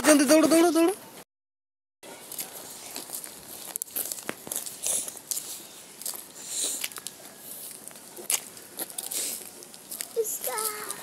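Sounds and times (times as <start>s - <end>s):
footsteps crunching on dirt: 2.2s - 11.0s.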